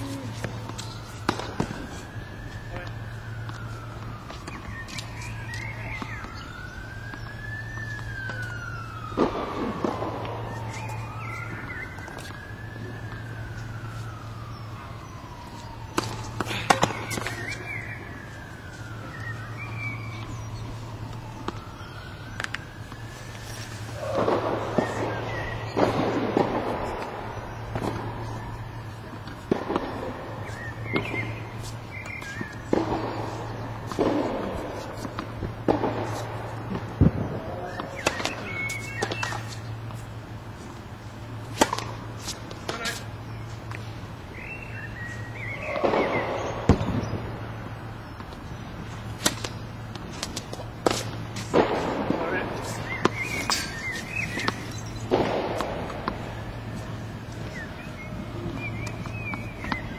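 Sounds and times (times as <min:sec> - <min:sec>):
siren wailing: 0:00.0 - 0:59.9
tennis ball struck: 0:15.9 - 0:17.7, 0:29.2 - 0:36.8, 0:37.7 - 0:39.6, 0:41.5 - 0:43.0, 0:49.1 - 0:56.3, 0:58.6 - 0:59.9.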